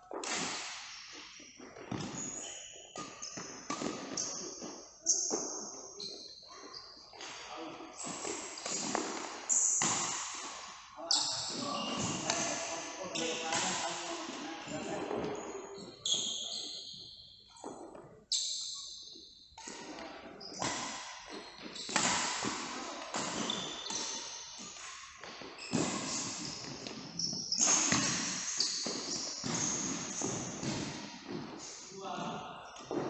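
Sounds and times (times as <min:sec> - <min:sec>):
racket hitting shuttlecock: 0:00.1 - 0:02.2, 0:03.0 - 0:05.7, 0:08.0 - 0:10.8, 0:20.6 - 0:31.6
shoe squeaks: 0:00.9 - 0:09.9, 0:11.0 - 0:22.3, 0:22.9 - 0:31.9.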